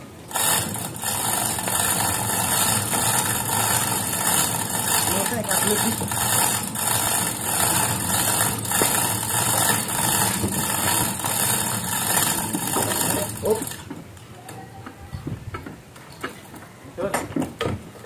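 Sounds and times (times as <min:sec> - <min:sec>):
winch running: 0:00.3 - 0:13.9.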